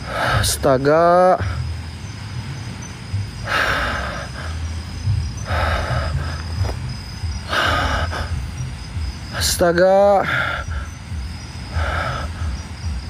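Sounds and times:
faint insect trill: 0.0 - 13.0
heavy breathing: 0.0 - 13.0
low rumble: 1.4 - 9.8, 10.5 - 13.0.

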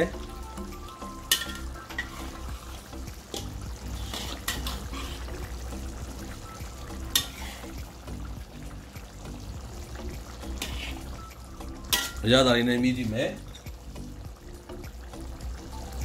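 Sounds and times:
curry sauce simmering: 0.0 - 16.0
soft background music: 0.0 - 16.0
metal spatula scraping a wok: 1.3 - 5.5, 7.0 - 7.8, 10.4 - 11.3, 11.9 - 12.2.

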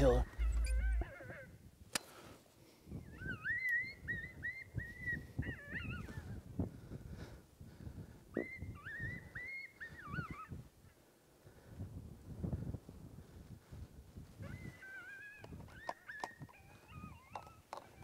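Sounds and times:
electronic animal cries: 0.0 - 1.5, 14.4 - 18.0.

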